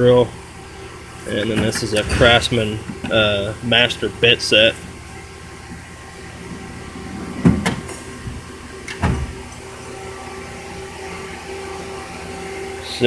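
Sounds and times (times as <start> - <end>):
steady background hum: 0.0 - 13.0.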